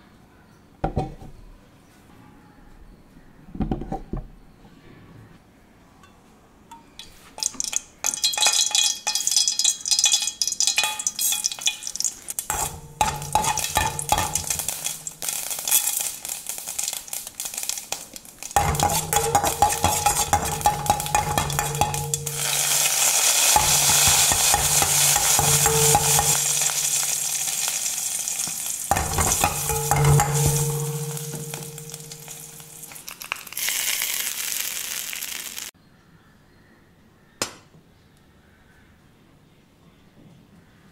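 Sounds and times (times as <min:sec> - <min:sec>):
spoon stirring in pan: 0:06.8 - 0:17.7, 0:18.4 - 0:33.1
oil sizzling: 0:07.0 - 0:35.7
seeds popping in hot oil: 0:07.0 - 0:35.7
low steady hum: 0:28.8 - 0:33.0.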